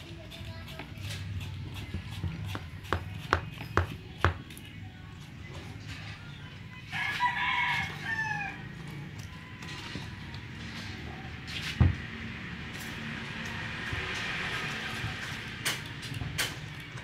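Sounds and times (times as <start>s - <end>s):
rooster crowing: 6.9s - 8.7s.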